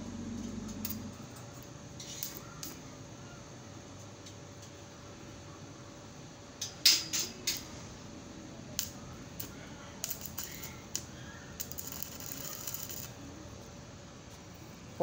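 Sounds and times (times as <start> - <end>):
welding arc crackle: 8.8 - 13.2.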